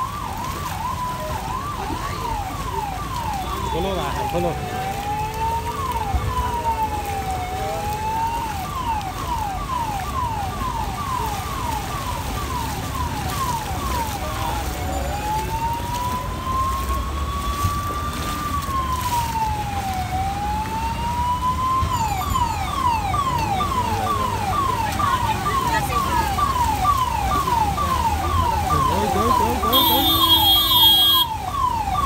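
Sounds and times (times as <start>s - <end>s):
electronic siren wailing and yelping: 0.0s - 32.0s.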